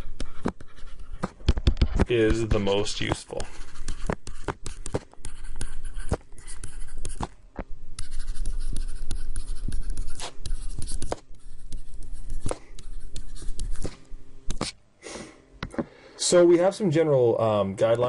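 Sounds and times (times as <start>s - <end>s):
stylus writing on tablet: 0.0s - 1.4s, 2.1s - 7.3s, 8.0s - 14.8s.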